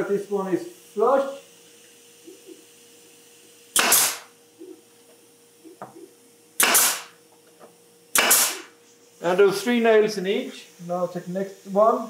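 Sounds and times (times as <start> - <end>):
pneumatic nail gun firing: 3.7 - 4.4, 6.6 - 7.2, 8.1 - 8.8.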